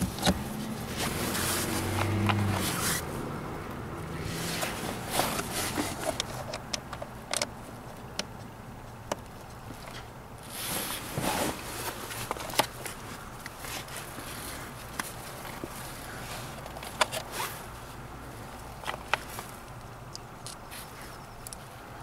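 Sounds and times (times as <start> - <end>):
hands handling plastic parts: 0.0 - 3.1, 4.2 - 21.7
rustling scrape: 0.0 - 3.2, 4.2 - 6.5, 9.9 - 17.9.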